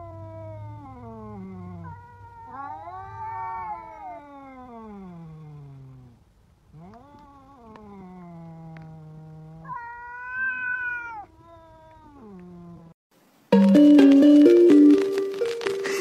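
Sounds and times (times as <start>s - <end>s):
cats yowling: 0.0s - 4.9s, 9.6s - 12.8s
cat making low calls: 0.0s - 5.2s, 9.6s - 12.9s.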